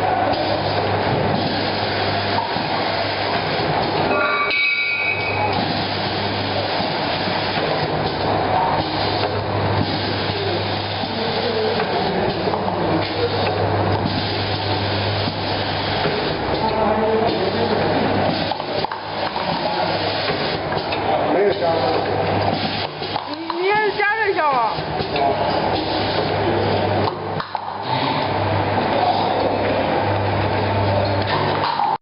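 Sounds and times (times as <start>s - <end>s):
short high-pitched tone: 4.1s - 5.5s
machine motor hum: 5.3s - 32.0s.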